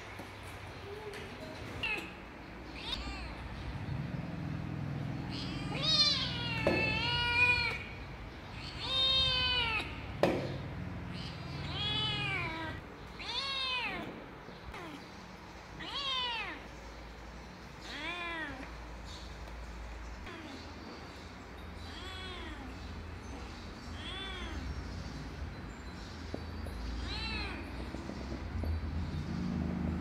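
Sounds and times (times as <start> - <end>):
kittens meowing: 1.8 - 3.8, 5.1 - 15.0, 15.8 - 16.7, 17.8 - 18.8, 21.8 - 23.0, 23.9 - 24.9, 26.9 - 27.8.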